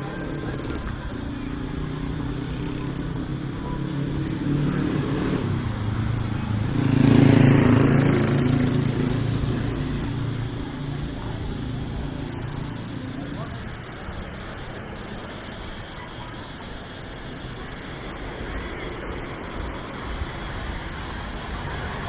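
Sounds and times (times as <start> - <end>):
vehicle engine driving past: 0.0 - 15.7.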